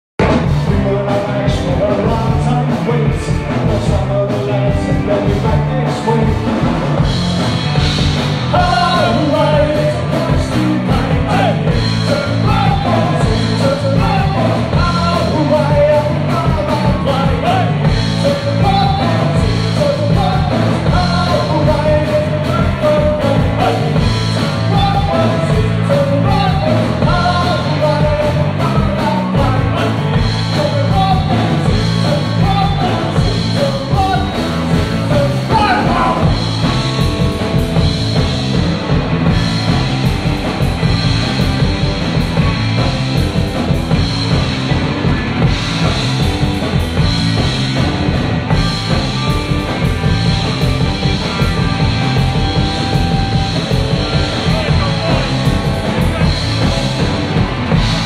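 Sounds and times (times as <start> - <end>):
bass guitar: 0.1 - 58.0
drum kit: 0.2 - 58.0
electric guitars: 0.2 - 58.0
lead vocal singing: 0.3 - 7.0, 8.4 - 37.0.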